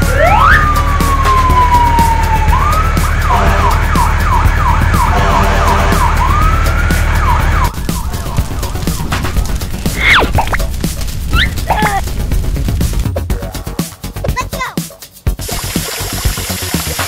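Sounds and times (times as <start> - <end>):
fire engine siren wailing: 0.0 - 10.1.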